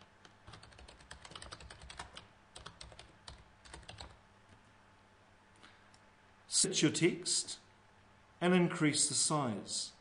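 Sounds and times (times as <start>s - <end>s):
computer keyboard keys tapping: 0.2s - 4.6s.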